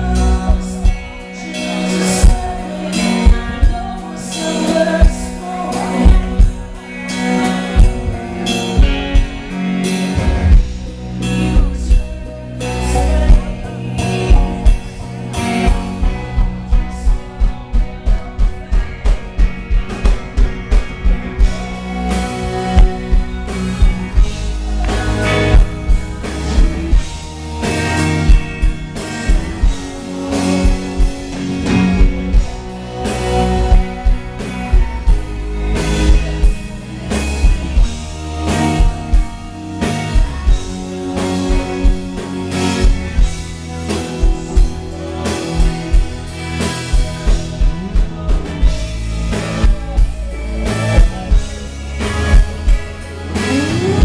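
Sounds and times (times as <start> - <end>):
woman singing: 0.0 - 6.9
drum kit beat: 0.0 - 54.0
electric guitars: 0.0 - 54.0.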